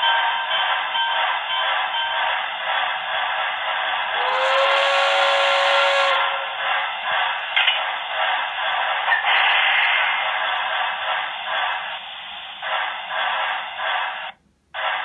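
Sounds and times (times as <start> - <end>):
steady steam hiss: 0.6 - 15.0
steam whistle blast: 4.2 - 6.5.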